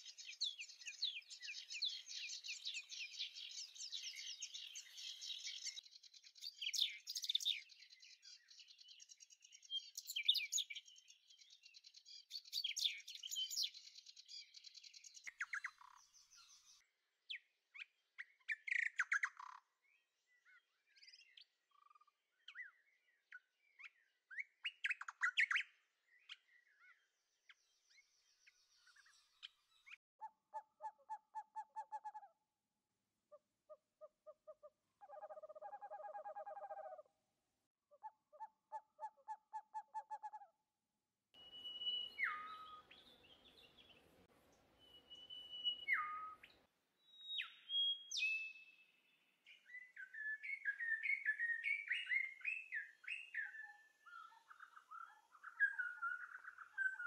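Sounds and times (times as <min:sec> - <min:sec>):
birds chirping: 0:00.0 - 0:16.8, 0:41.4 - 0:57.0
lower repeated bird notes: 0:00.0 - 0:16.8, 0:41.4 - 0:57.0.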